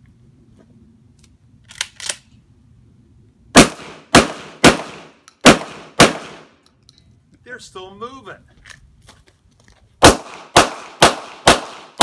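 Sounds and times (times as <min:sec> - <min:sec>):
shotgun shots echoing: 0:03.6 - 0:06.5, 0:10.0 - 0:12.0.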